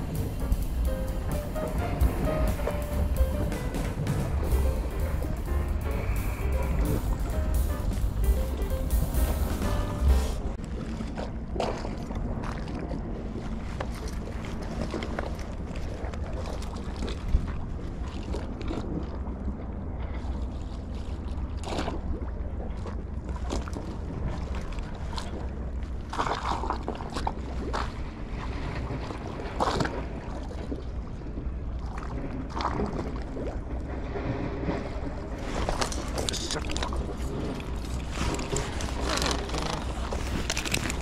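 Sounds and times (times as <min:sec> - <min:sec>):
wind rumble on microphone: 0:00.0 - 0:41.0
handling knocks and rustles: 0:37.8 - 0:41.0.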